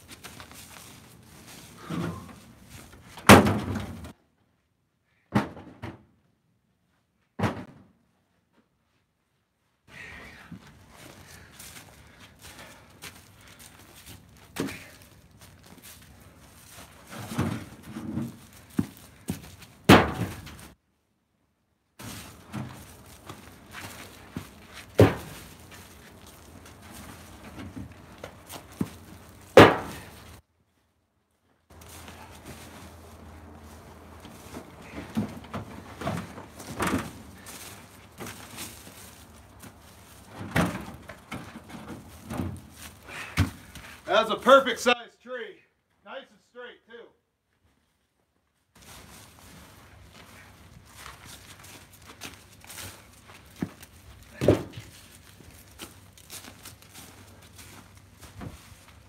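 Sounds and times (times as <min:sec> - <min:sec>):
footsteps: 0:00.0 - 0:04.2, 0:08.2 - 0:20.8, 0:22.0 - 0:44.9, 0:47.5 - 0:59.0
firewood thunking on woodpile: 0:03.1 - 0:04.2, 0:05.3 - 0:06.0, 0:07.4 - 0:07.9, 0:16.7 - 0:20.8, 0:22.0 - 0:30.4, 0:31.7 - 0:44.0, 0:51.0 - 0:58.8.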